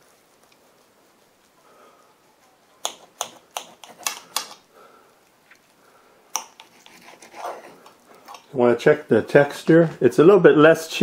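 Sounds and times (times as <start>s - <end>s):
faint knife scraping: 6.4s - 8.6s.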